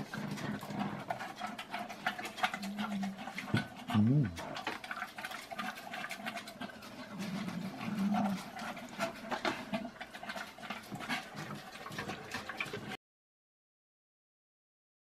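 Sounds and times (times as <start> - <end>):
dog licking a metal pot: 0.0 - 13.0.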